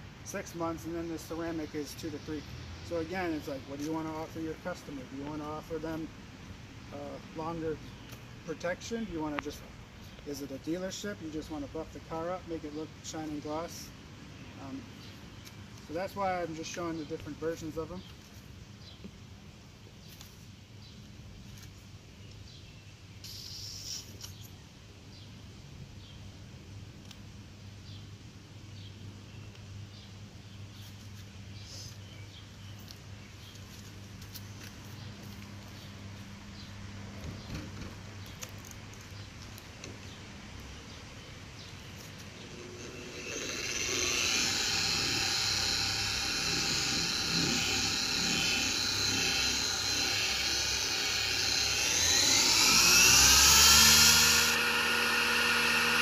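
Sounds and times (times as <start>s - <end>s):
car polisher motor whine: 42.0s - 56.0s.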